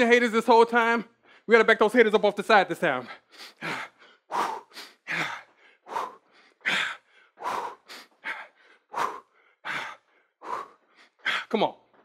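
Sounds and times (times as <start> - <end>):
person breathing hard: 3.0 - 11.5.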